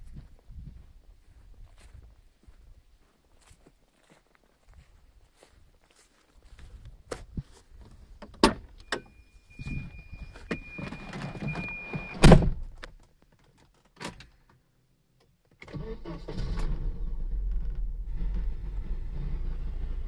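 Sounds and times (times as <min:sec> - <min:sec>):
high warning tone: 0:08.8 - 0:12.2
car door slamming: 0:11.6 - 0:12.7.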